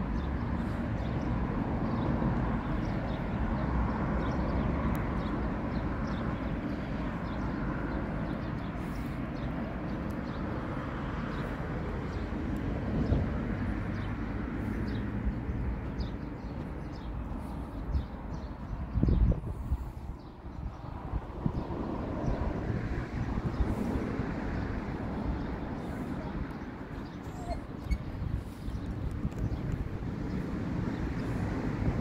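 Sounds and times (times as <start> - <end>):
faint high squeaks: 27.2 - 28.2.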